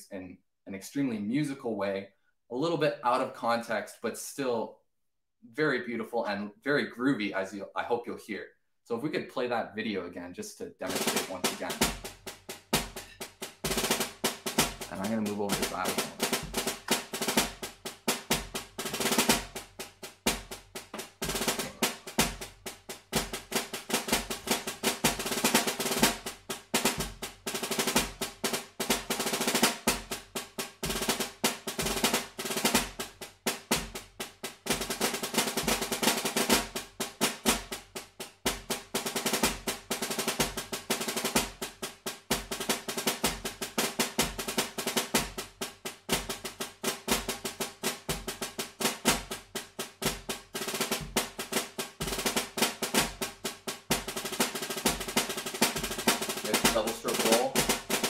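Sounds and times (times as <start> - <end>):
snare drum rolls: 10.8 - 58.0
low beat thumping: 10.9 - 29.2, 32.8 - 38.7, 49.2 - 52.3, 53.1 - 58.0.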